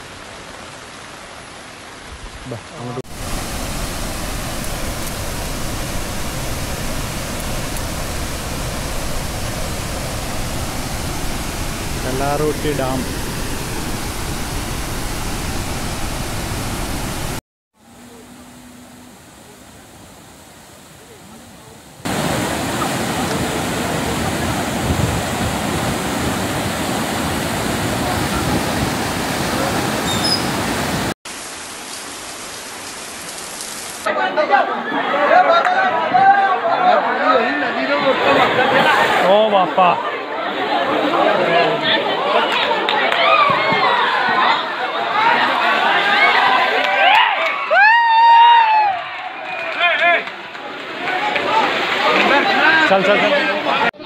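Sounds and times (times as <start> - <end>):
water rushing through spillway: 0.0 - 34.1, 38.1 - 53.9
rain hissing: 3.0 - 17.4, 18.0 - 34.1.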